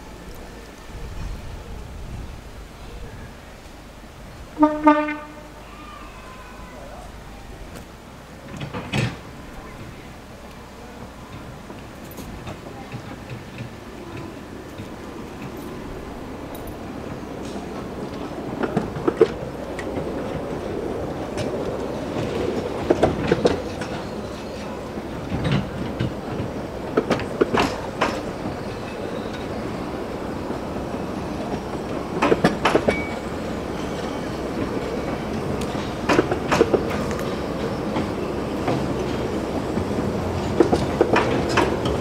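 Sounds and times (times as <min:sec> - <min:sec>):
train rumble: 0:00.0 - 0:42.0
wheels clicking over rail joints: 0:00.0 - 0:42.0.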